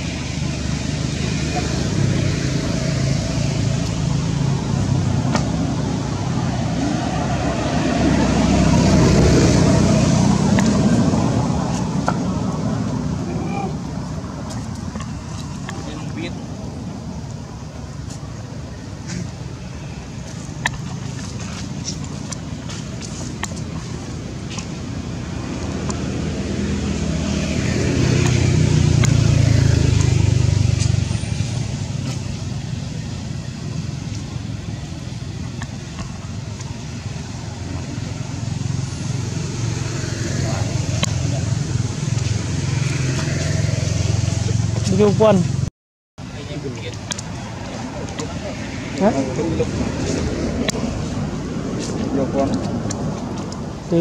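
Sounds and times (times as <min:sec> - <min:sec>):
vehicle engine driving past: 0:00.0 - 0:14.4
low rumble with hiss: 0:00.0 - 0:54.0.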